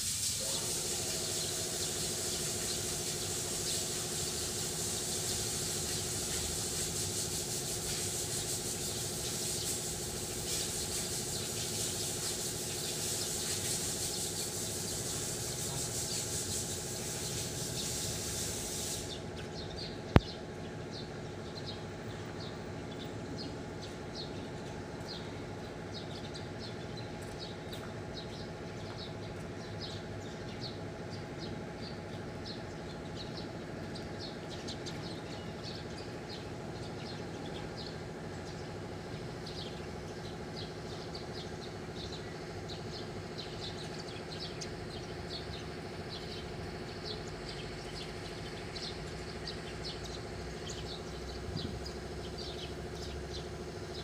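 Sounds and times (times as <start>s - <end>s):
high hiss: 0.0s - 19.2s
steady mechanical hum: 0.0s - 54.0s.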